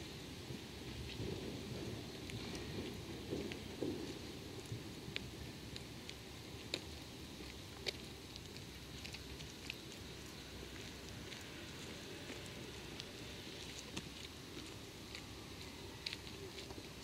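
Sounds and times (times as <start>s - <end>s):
small ticks: 3.5s - 15.3s.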